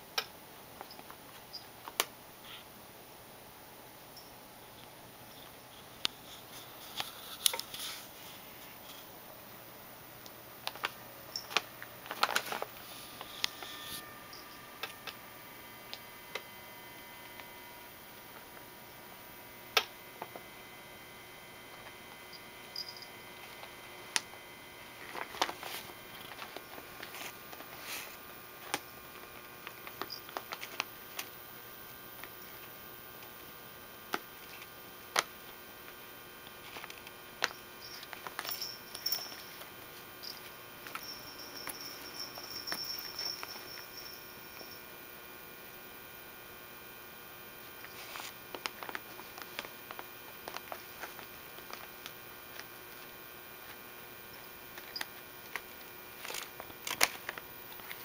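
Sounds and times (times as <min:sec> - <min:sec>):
cat rummaging in a leather purse: 0:36.6 - 0:43.8
small clicks taps and rustles: 0:48.5 - 0:53.8.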